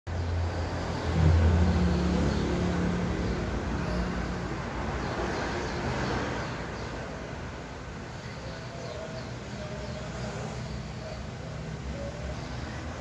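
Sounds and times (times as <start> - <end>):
low machine hum: 0.1 - 5.9.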